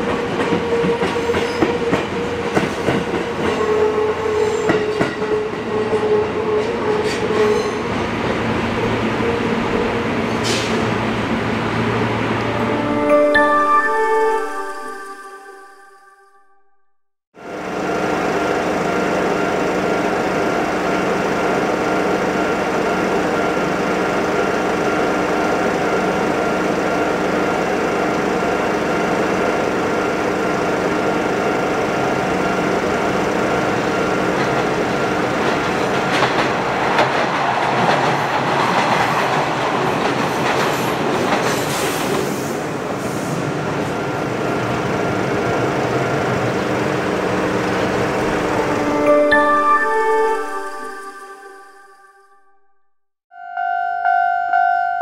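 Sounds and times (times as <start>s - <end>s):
rail-joint clickety-clack: 0.0s - 8.4s, 32.1s - 44.1s
second train running: 0.0s - 16.2s, 17.4s - 52.2s
electric train running: 44.1s - 49.4s.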